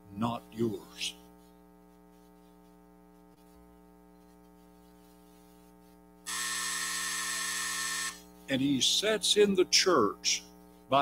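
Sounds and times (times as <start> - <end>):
electrical mains hum: 0.0 - 11.0
harsh electronic buzz: 6.2 - 8.5.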